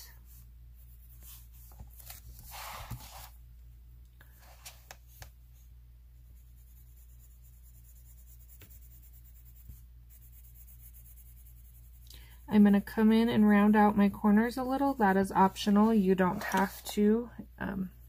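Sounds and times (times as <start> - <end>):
pencil strokes on paper: 0.0 - 3.4, 4.4 - 17.2
low steady hum: 0.0 - 18.0
page sliding and rustling: 1.7 - 3.3, 4.4 - 5.0, 16.3 - 16.8.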